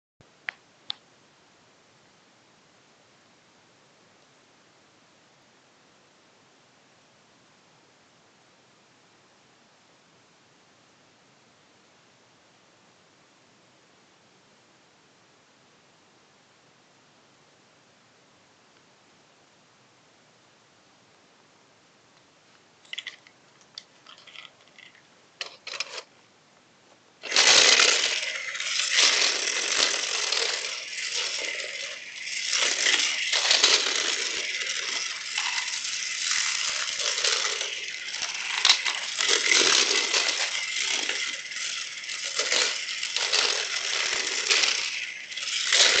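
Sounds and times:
toy car rattling whir: 22.9 - 26.1, 27.2 - 46.0.

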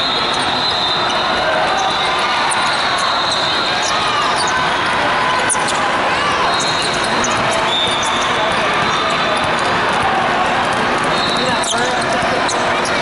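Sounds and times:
sneakers squeaking on hardwood: 6.5 - 9.8
basketball bouncing: 6.7 - 13.0.

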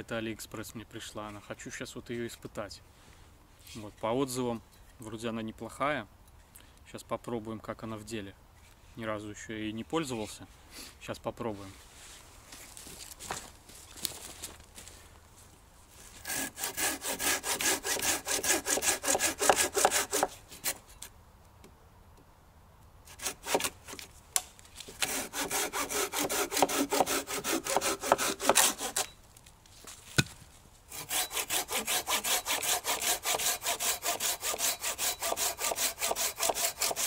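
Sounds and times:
hand saw cutting branch: 16.1 - 20.9, 23.1 - 29.2, 30.9 - 37.0.

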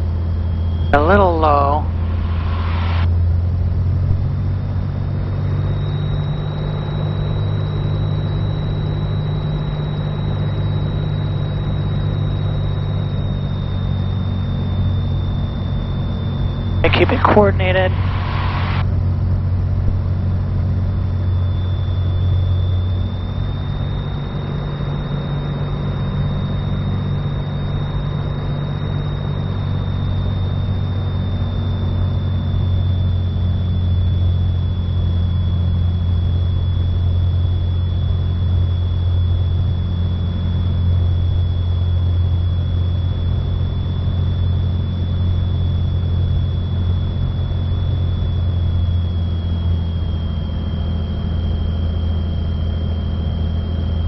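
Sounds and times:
propeller plane engine drone: 0.0 - 54.0
thin high whine: 0.0 - 54.0.

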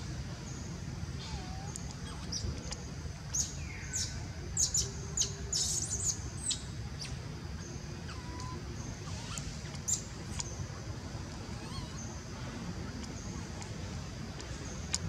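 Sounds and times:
steady low rumble: 0.0 - 15.0
young monkeys squealing: 1.2 - 2.4, 8.1 - 10.1, 11.4 - 12.2.

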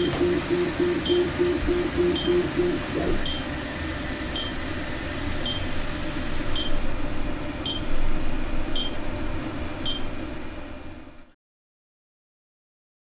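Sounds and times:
short high electronic beeps: 0.0 - 3.4
low background hum: 0.0 - 11.4.

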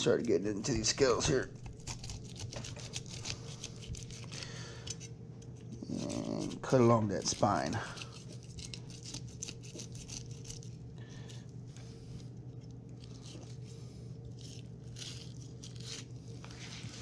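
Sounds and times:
low hum: 0.0 - 17.0
knife scraping through fish: 1.7 - 5.1, 5.8 - 11.3.

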